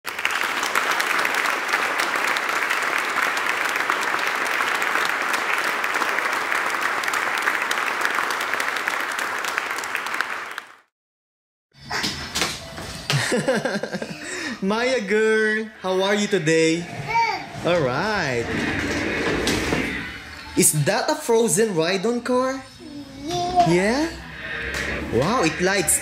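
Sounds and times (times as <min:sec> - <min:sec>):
crowd applause: 0:00.0 - 0:10.9.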